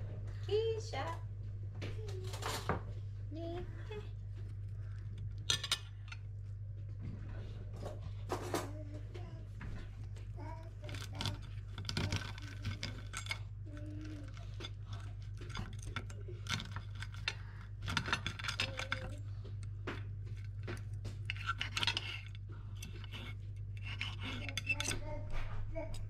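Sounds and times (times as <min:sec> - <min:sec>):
steady low hum: 0:00.0 - 0:26.0
cutlery scraping a plate: 0:21.3 - 0:25.0.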